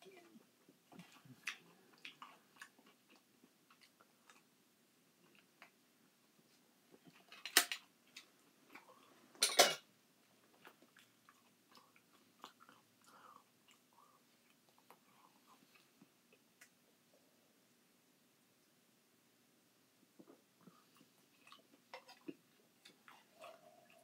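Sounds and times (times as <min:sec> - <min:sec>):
chewing: 0:00.9 - 0:04.5, 0:10.5 - 0:16.8, 0:20.2 - 0:24.0.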